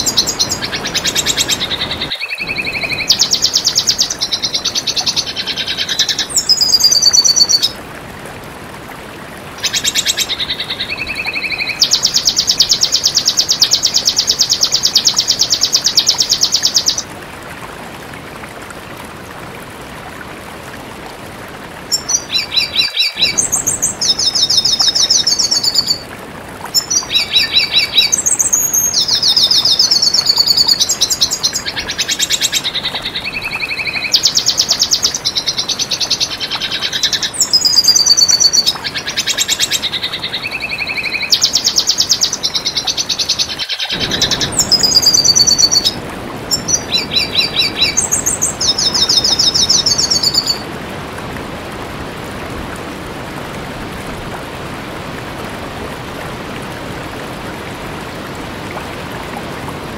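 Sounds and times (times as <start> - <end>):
bird singing twittering trills: 26.8 - 50.6.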